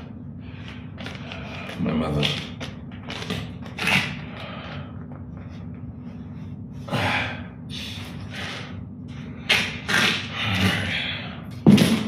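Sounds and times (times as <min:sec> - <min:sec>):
man breathing heavily: 0:00.0 - 0:01.8, 0:04.1 - 0:11.6
low steady hum: 0:00.0 - 0:12.0.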